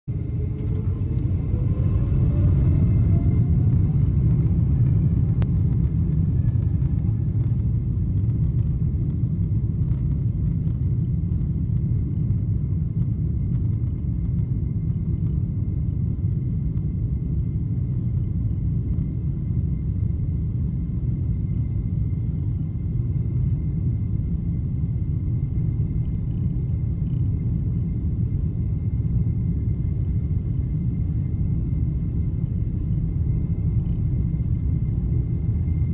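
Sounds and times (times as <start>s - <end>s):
low rumble inside aircraft cabin: 0.0s - 35.9s.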